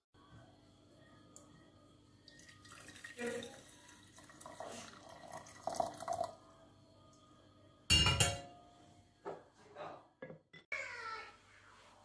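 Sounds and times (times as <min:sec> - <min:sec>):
water pouring into teapot: 0:02.3 - 0:06.5.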